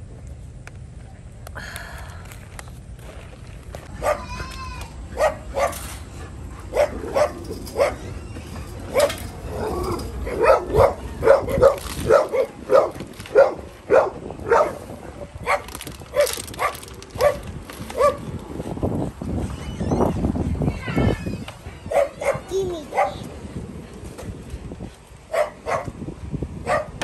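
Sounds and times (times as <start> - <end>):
dog barking: 3.9 - 4.3, 5.1 - 5.9, 6.6 - 8.1, 8.9 - 17.4, 18.0 - 18.2, 21.8 - 23.2, 25.3 - 26.0, 26.6 - 27.0.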